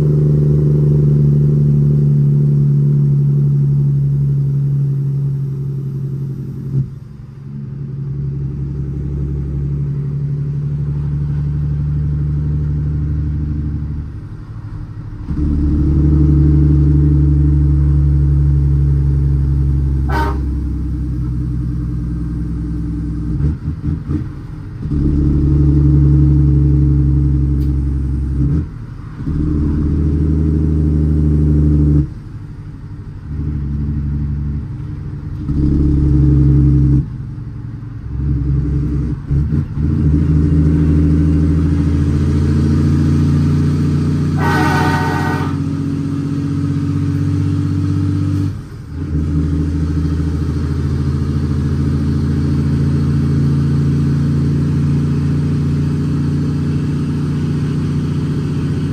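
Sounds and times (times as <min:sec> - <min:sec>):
diesel truck engine shifting gears: 0:00.0 - 0:58.9
truck horn: 0:20.0 - 0:21.1, 0:44.3 - 0:46.0.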